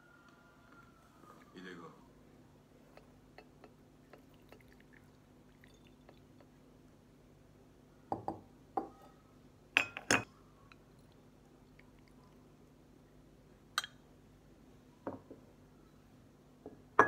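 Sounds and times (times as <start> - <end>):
light water drips: 3.0 - 6.6, 10.7 - 12.8.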